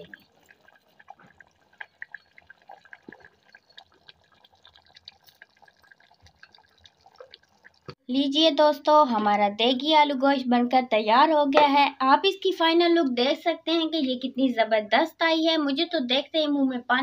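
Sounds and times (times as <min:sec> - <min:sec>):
curry bubbling in a pot: 0:00.0 - 0:08.0.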